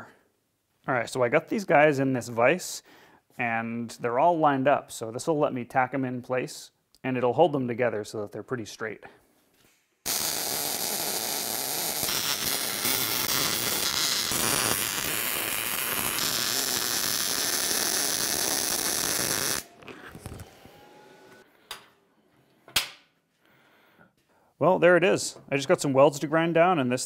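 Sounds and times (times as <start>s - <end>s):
electric arc welding hiss: 10.1s - 20.4s.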